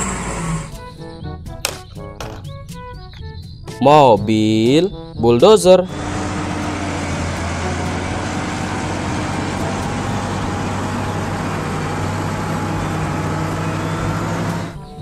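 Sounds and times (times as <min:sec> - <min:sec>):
bulldozer diesel engine droning: 0:00.0 - 0:01.1, 0:05.8 - 0:15.0.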